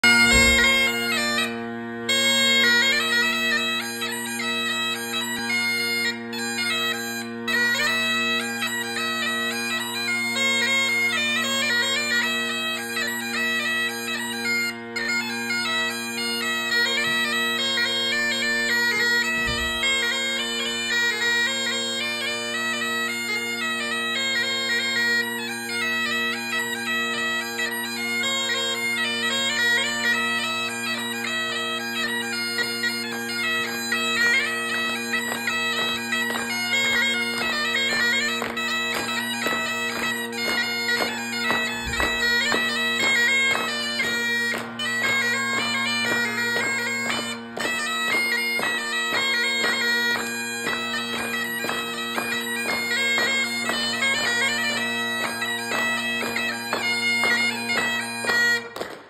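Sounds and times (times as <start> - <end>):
bagpipe chanter melody: 0.0 - 59.0
bagpipe drones humming: 0.0 - 59.0.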